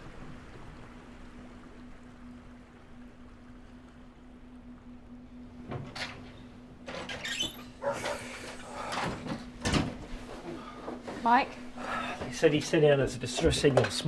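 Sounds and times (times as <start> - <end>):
low hum: 0.0 - 13.3
short squeak: 7.1 - 7.9.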